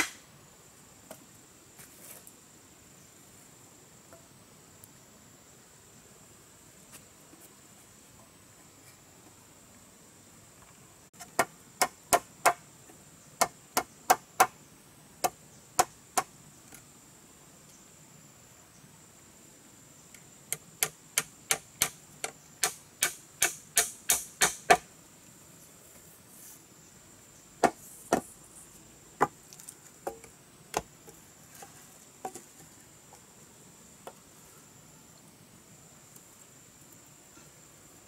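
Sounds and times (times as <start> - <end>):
hammer striking bamboo: 0.0 - 0.2, 20.5 - 24.9.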